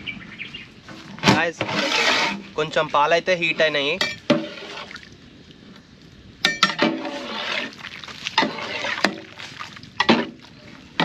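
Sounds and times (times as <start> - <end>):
milk swishing and sloshing: 6.9 - 11.0.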